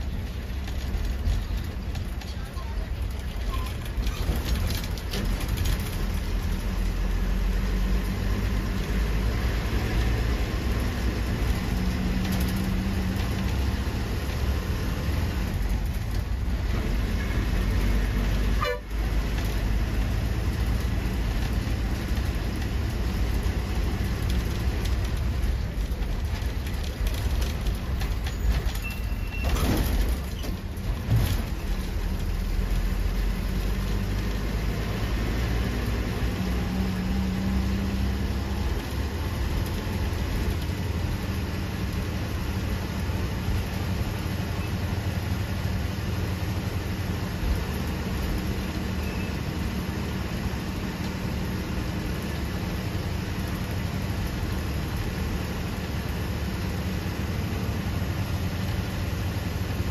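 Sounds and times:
bus engine running: 0.0s - 59.9s
road rumble: 0.0s - 59.9s
bus horn toot: 18.5s - 19.0s.

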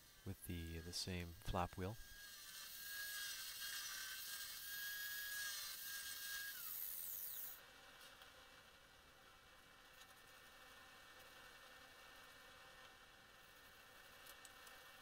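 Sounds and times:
angle grinder grinding steel: 0.0s - 7.6s.

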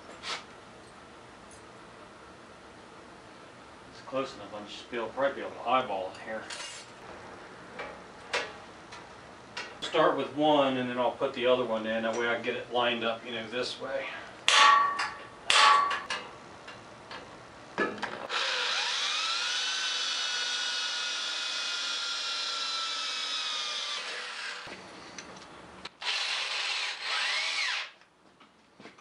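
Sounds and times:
cordless drill boring metal: 18.3s - 24.7s, 26.0s - 28.0s.

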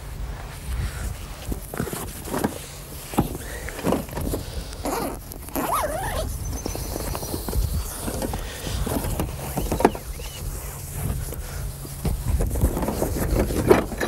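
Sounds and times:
short squeaks: 4.8s - 8.3s, 9.2s - 10.6s.

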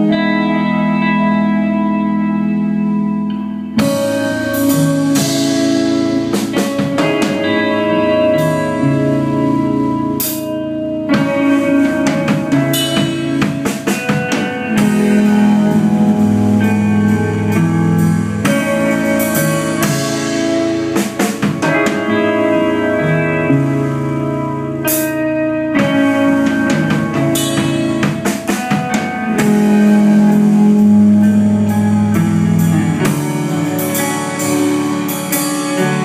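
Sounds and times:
bass guitar: 0.0s - 36.0s
electric guitar notes ringing: 0.0s - 36.0s
drum and cymbal hits: 3.8s - 7.6s, 11.1s - 22.5s, 25.8s - 36.0s.

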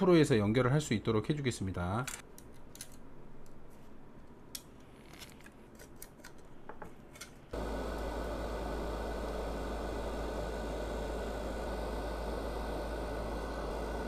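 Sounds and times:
low hum: 7.6s - 14.0s
steady hiss: 7.6s - 14.0s.

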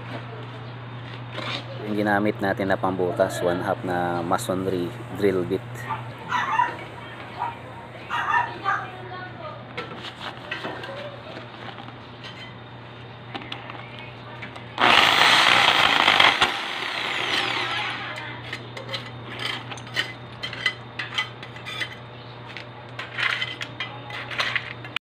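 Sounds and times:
electric drill running: 14.8s - 18.2s.

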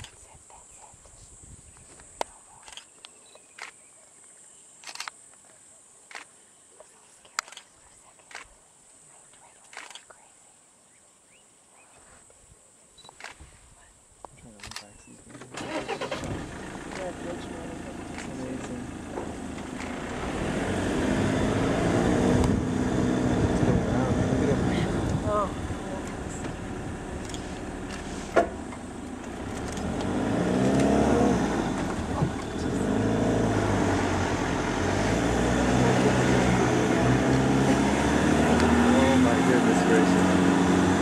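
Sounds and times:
camera shutters clicking: 4.8s - 5.2s, 9.7s - 10.1s
vehicle engine running: 15.6s - 41.0s.

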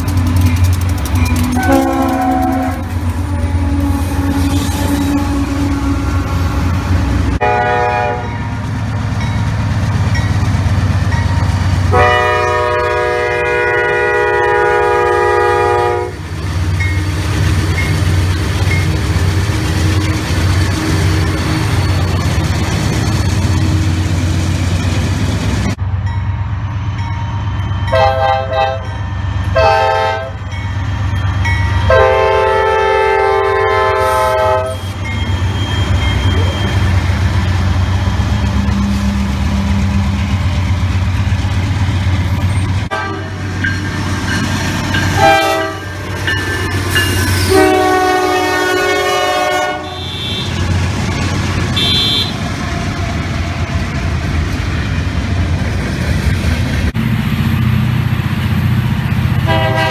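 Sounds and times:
locomotive engine rumble: 0.0s - 59.9s
multi-tone air horn blasts: 1.5s - 5.4s, 7.4s - 8.3s, 11.9s - 16.2s, 27.9s - 28.9s, 29.6s - 30.4s, 31.8s - 35.1s, 42.9s - 43.4s, 45.2s - 45.9s, 47.4s - 50.6s, 51.8s - 52.4s, 59.4s - 59.9s.

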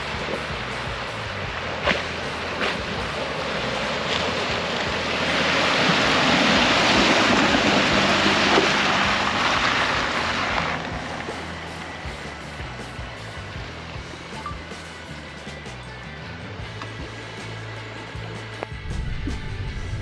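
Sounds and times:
water splashing and rushing: 0.0s - 14.8s.

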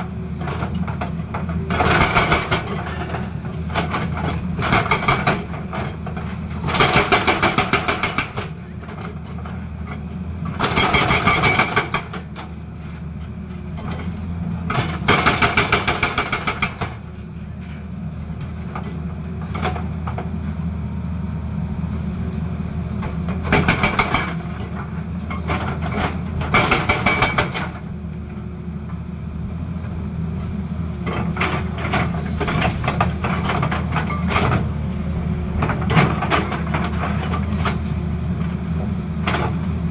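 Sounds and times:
excavator engine running: 0.0s - 39.9s
hydraulic rock breaker hammering rock: 0.4s - 9.6s, 10.5s - 12.6s, 13.7s - 17.2s, 23.0s - 27.9s, 31.0s - 34.7s, 35.5s - 37.9s.

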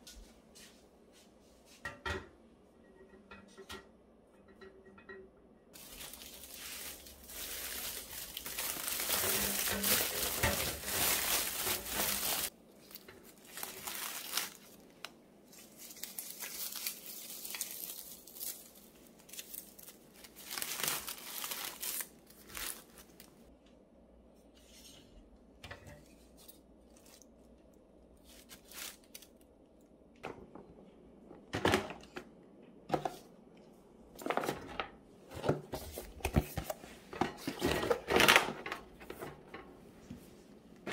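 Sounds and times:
packing paper crinkling: 5.8s - 23.5s, 28.2s - 29.4s.

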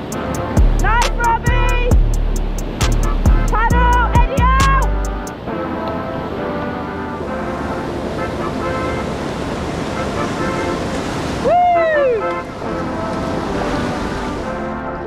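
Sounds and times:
river rapid rushing: 0.0s - 15.0s
person whooping: 11.4s - 12.4s.

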